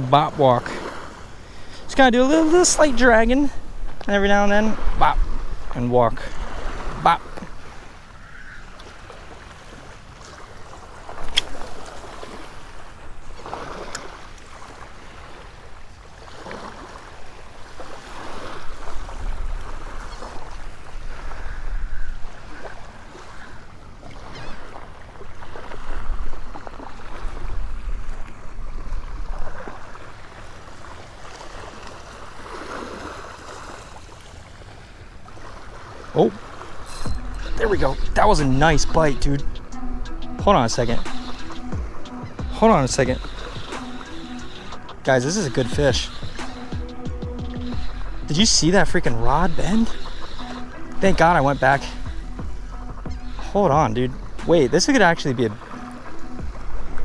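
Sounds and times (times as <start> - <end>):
small waves lapping on shore: 0.0 - 57.0
wind buffeting microphone: 1.8 - 30.3.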